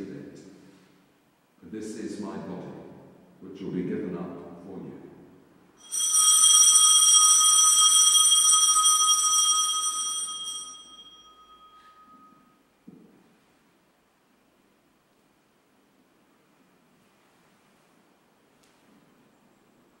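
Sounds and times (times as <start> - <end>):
bell ringing: 5.8 - 12.6.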